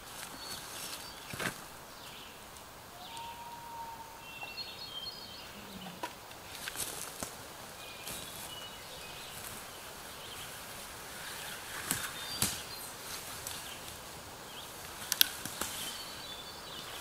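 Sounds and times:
footsteps through leaf litter: 0.0 - 1.7, 6.4 - 17.0
songbirds singing: 0.0 - 17.0
sharp crackles: 10.4 - 16.3.

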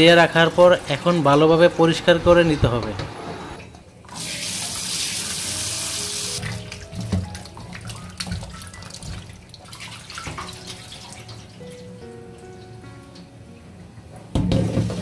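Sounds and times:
hands sloshing water: 6.4 - 11.6
knocks against metal bowl: 14.3 - 15.0.

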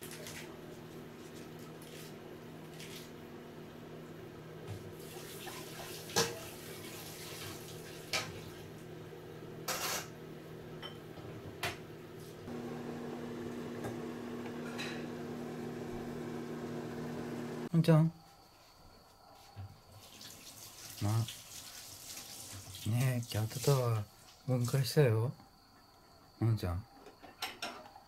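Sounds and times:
electrical hum: 0.1 - 18.1.

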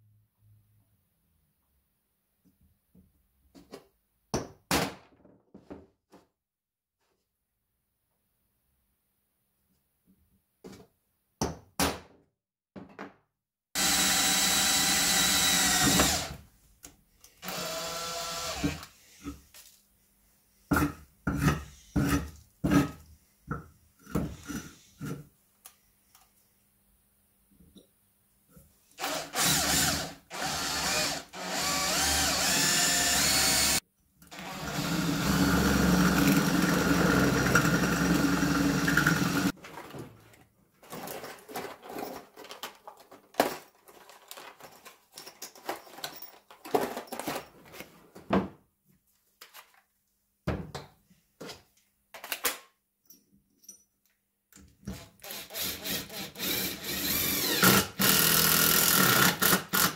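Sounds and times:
electric drill drilling: 13.8 - 16.4, 17.4 - 18.8, 29.0 - 39.5, 55.2 - 59.9.

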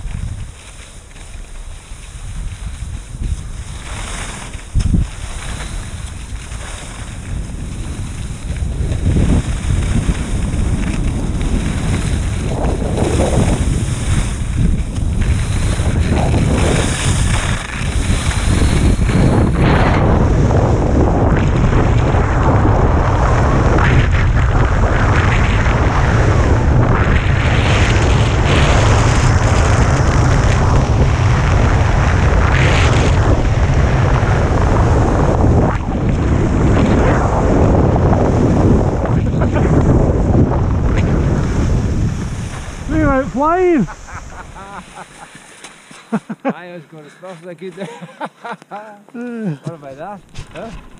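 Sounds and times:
wind buffeting microphone: 0.0 - 45.5
skis scraping on snow: 0.0 - 48.8, 49.6 - 50.9.

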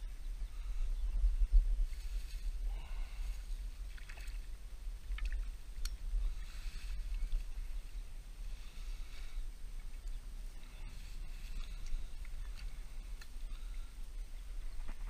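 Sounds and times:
net rustling through dry grass: 1.8 - 3.5
water splashing: 3.8 - 5.6.

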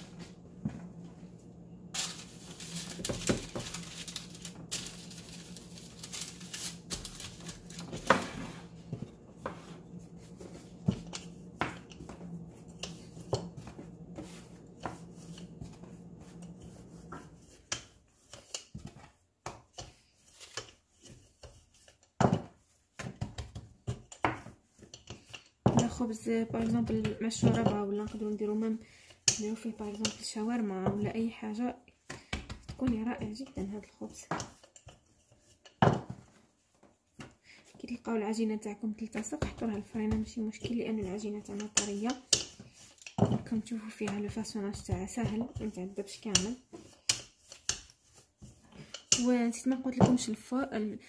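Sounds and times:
steady low hum: 0.0 - 17.5
rolling pin rolling dough: 0.0 - 50.7
rolling pin knocking on countertop: 2.9 - 5.3, 6.9 - 19.9, 22.2 - 25.0, 25.6 - 28.2, 32.1 - 34.7, 35.8 - 36.3, 39.2 - 47.9, 48.8 - 50.3.

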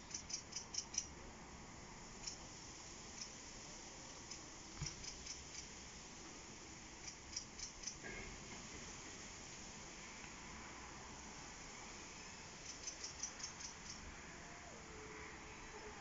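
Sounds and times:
faint background hiss: 0.0 - 16.0
clicking bird calls: 0.1 - 1.1, 12.6 - 14.0.

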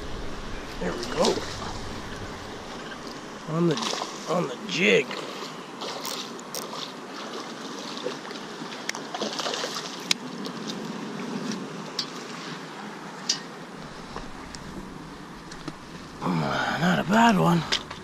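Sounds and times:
fish splashing in water: 9.0 - 10.1.

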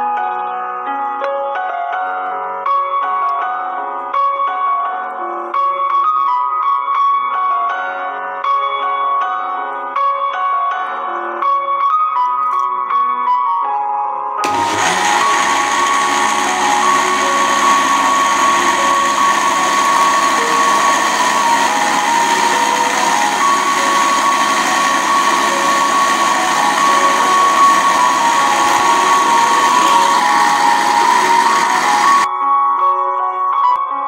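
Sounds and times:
blender running: 14.4 - 32.3.

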